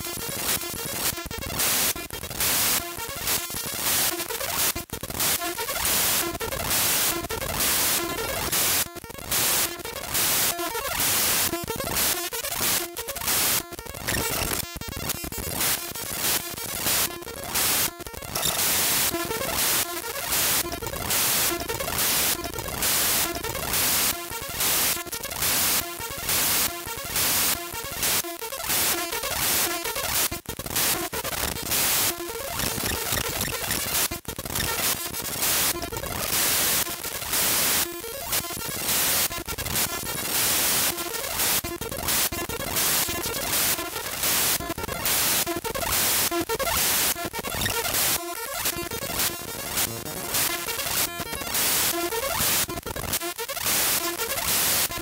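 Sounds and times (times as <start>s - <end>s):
glitchy buzzing tones: 0.0s - 55.0s
harsh static hiss: 0.0s - 55.0s
buzzing stuttering tones: 13.2s - 23.8s, 46.6s - 54.4s.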